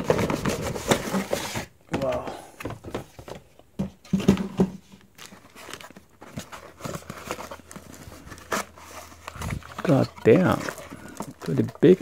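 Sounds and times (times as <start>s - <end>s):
box knocking against box: 0.0s - 4.8s
packaging crinkling: 5.1s - 12.0s
cardboard box pulled open: 7.4s - 11.4s.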